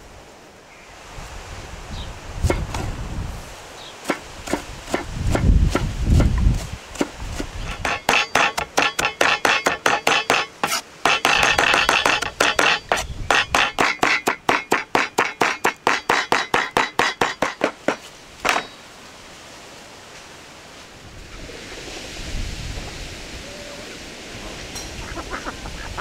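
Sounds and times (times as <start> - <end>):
knife chopping on wooden board: 4.0 - 18.7.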